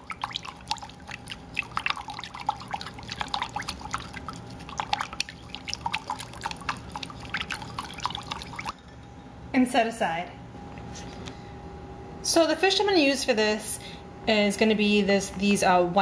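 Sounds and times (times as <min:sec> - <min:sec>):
liquid swishing: 0:00.0 - 0:08.8.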